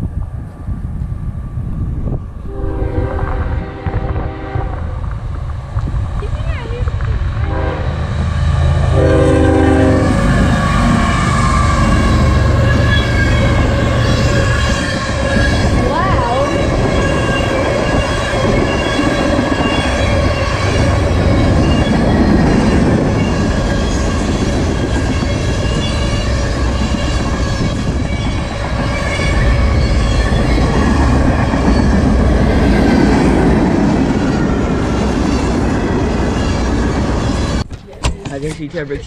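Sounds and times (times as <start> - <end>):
train wheels rumbling on rails: 0.0 - 39.0
train wheels squealing: 9.9 - 33.1, 34.2 - 37.6.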